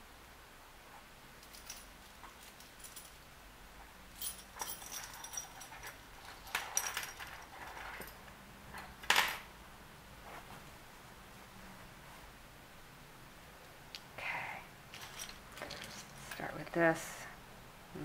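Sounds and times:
metal jewelry clinking: 1.4 - 9.4, 14.9 - 16.6
fabric rustling: 10.2 - 12.4.

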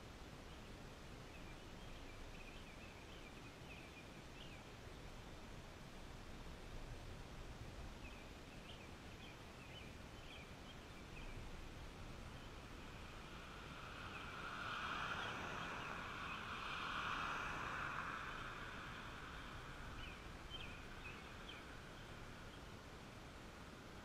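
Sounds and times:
car tyres passing on road: 12.3 - 22.5.

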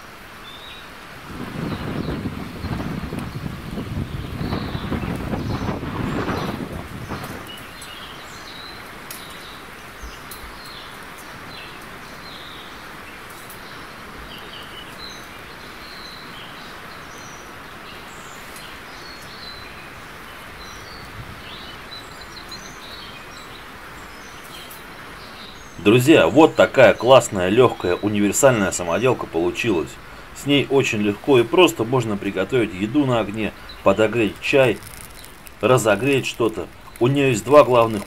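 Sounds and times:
small birds chirping: 0.0 - 38.0
steady hiss: 0.0 - 38.0.

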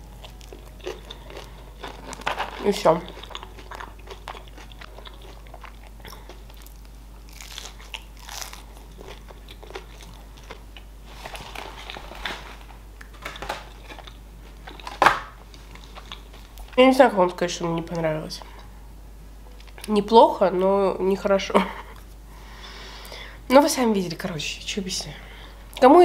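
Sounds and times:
person chewing crunchy food: 0.0 - 16.8.

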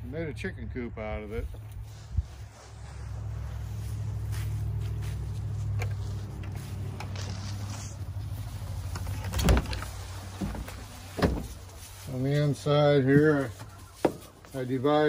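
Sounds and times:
low hum: 0.0 - 11.9.

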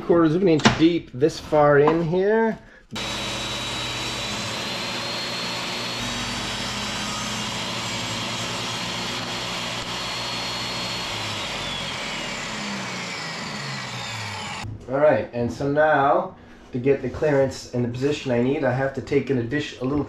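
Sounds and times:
table saw motor whine: 3.0 - 14.6.

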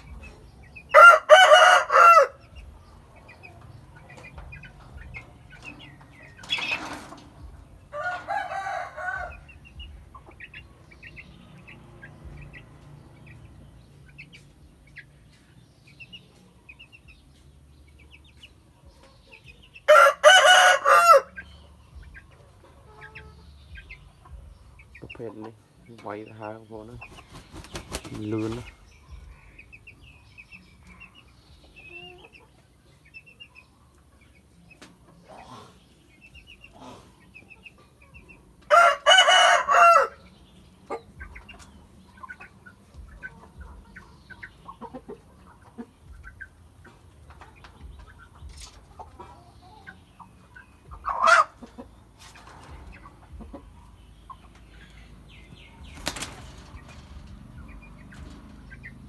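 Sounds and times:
chicken clucking: 0.0 - 59.0
rooster crowing: 0.9 - 2.4, 8.0 - 9.4, 19.9 - 21.3, 38.7 - 40.2
wings fluttering: 27.1 - 28.7, 55.9 - 57.1.

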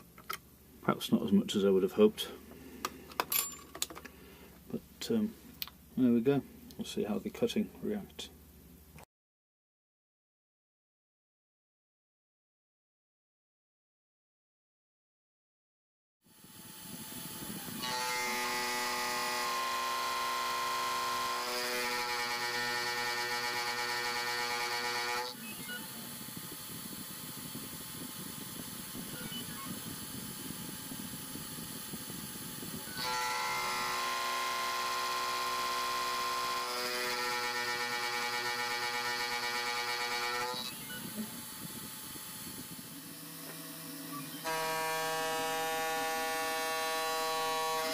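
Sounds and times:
rough metal cutting noise: 16.7 - 26.2, 32.4 - 47.9
milling spindle squealing: 40.6 - 41.3.

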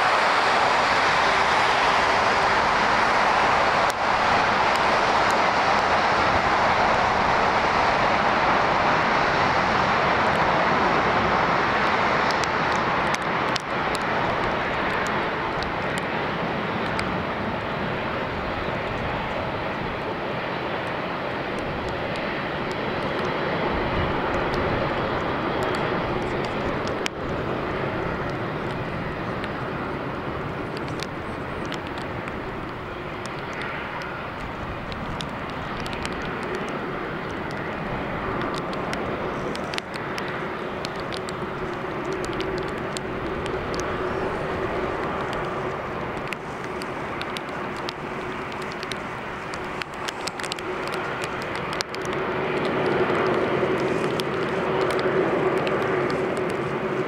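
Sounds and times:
jet engines droning: 0.0 - 57.0
heavy rain clicking: 11.7 - 16.0, 30.6 - 57.0.

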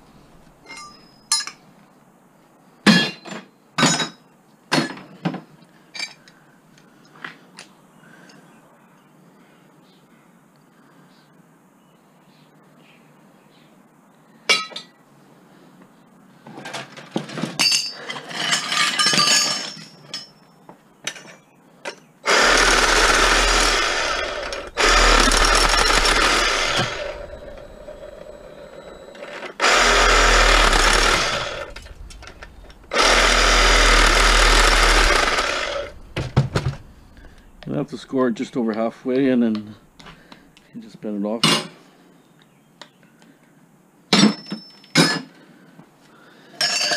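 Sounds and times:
metal clinks and knocks: 0.6 - 1.6, 17.3 - 20.5
power saw cutting pipe: 22.2 - 38.0.

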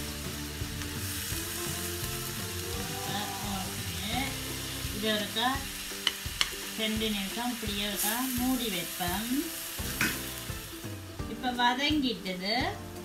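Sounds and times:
cabbage sizzling in a wok: 0.0 - 13.0
spatula clacking against pan: 6.0 - 6.6.

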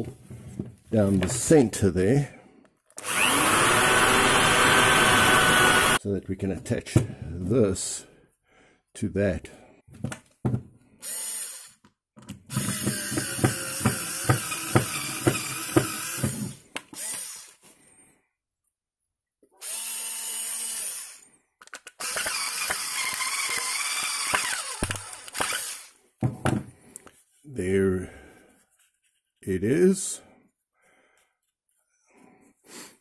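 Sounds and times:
cordless drill boring wood: 3.0 - 6.0, 11.0 - 11.8, 12.5 - 17.6, 19.6 - 21.3, 22.0 - 26.0.

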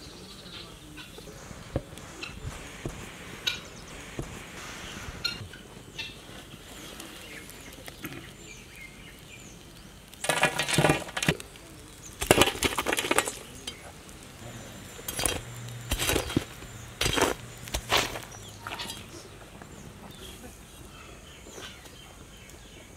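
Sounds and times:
faint bird chirps: 0.0 - 10.0
charcoal clattering on metal lid: 10.2 - 13.9, 14.9 - 19.1.

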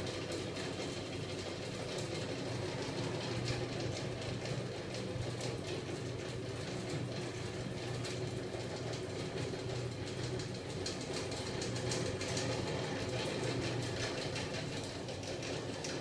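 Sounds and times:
rapid light clatter of ticks: 0.0 - 16.0.

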